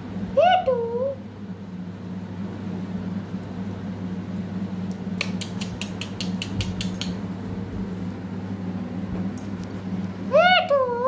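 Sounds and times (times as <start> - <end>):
steady low hum: 0.0 - 11.0
sharp clicks: 4.9 - 7.2.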